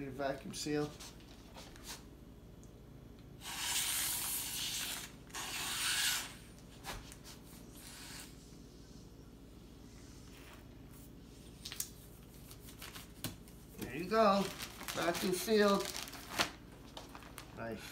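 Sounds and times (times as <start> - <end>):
air sucked through a straw: 3.4 - 6.2.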